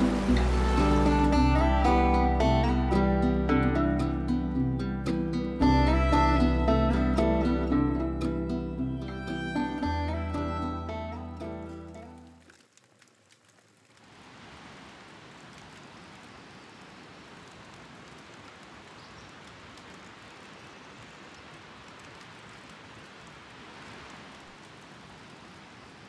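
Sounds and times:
creek water rushing: 0.0s - 12.6s.

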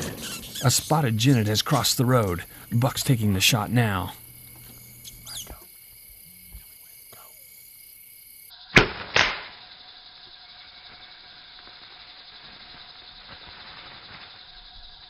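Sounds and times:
gunshot crack: 8.7s - 9.6s
second gunshot report: 8.8s - 9.6s.

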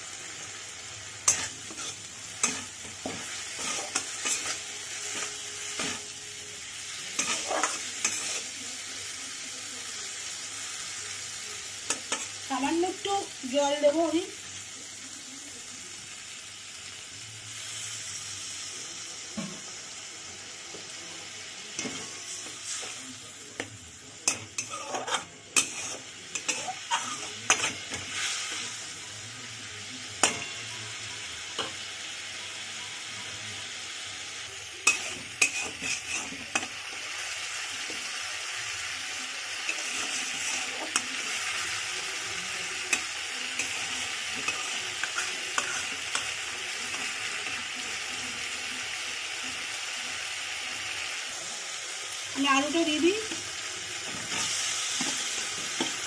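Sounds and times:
spices sizzling in oil: 0.0s - 56.0s.

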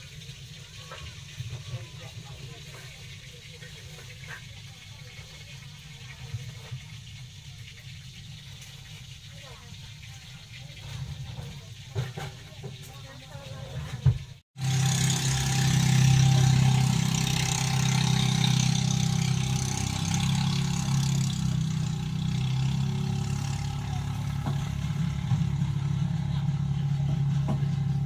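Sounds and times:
engine idling: 14.6s - 28.0s.

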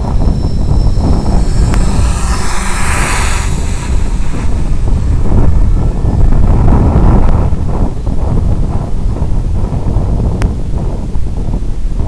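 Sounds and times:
electric motor and propeller: 0.0s - 8.6s
wind buffeting microphone: 0.0s - 12.0s.

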